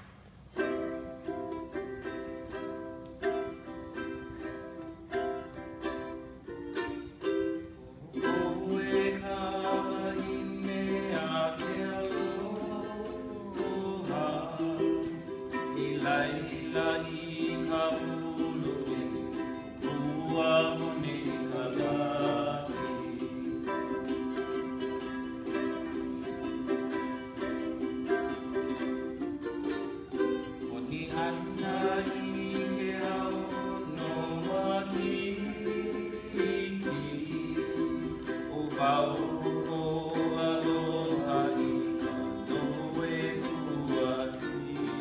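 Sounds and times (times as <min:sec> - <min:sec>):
ukuleles strumming: 0:00.0 - 0:45.0
person singing: 0:00.6 - 0:45.0.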